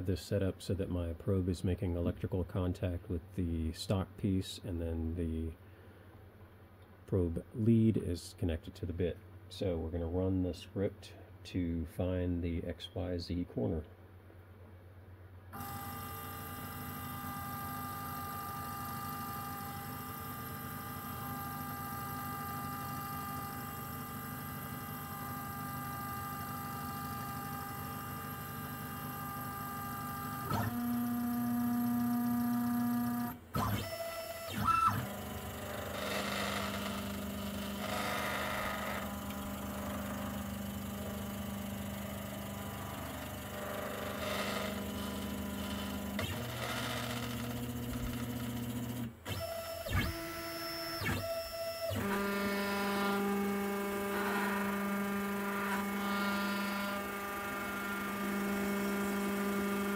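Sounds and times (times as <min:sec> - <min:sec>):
stepper motors whining: 0:21.1 - 0:59.9.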